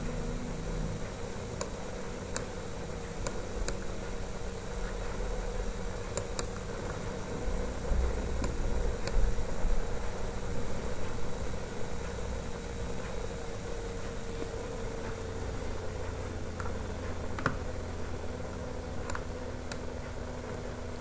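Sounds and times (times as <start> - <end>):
room hum and hiss: 0.0 - 21.0
computer mouse clicks: 8.4 - 9.2, 19.0 - 19.9.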